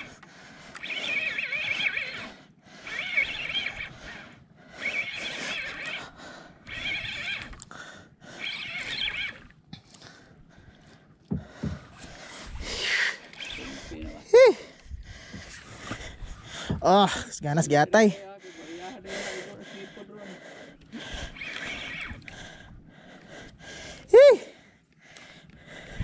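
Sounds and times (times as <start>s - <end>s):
fishing reel whirring: 0.0s - 10.4s, 11.9s - 16.3s, 20.7s - 24.3s.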